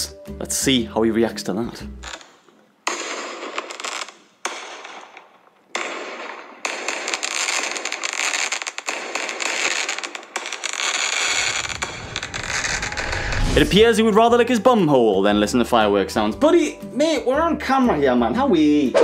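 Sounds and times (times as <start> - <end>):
fireworks bangs: 2.9 - 14.2
fireworks crackling: 3.5 - 14.2.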